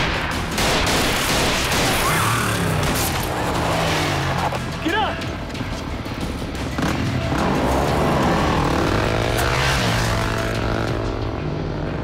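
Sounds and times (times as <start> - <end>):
music: 0.0 - 12.0
motorcycle engine revving: 6.4 - 12.0.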